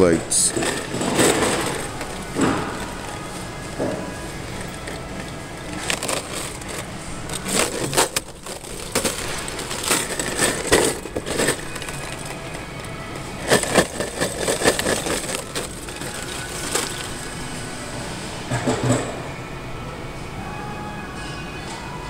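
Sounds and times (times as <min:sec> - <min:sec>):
plastic and cardboard crinkling: 0:00.3 - 0:17.6.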